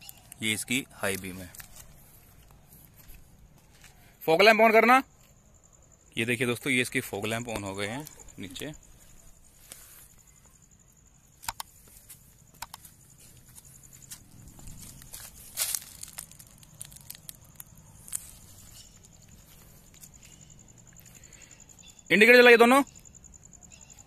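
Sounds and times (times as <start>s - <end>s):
crickets chirring: 0.0s - 24.0s
faint footsteps: 1.1s - 4.2s, 11.6s - 21.8s
sharp clicks: 11.4s - 11.8s, 12.5s - 13.0s
rustling handling noise: 12.9s - 20.2s.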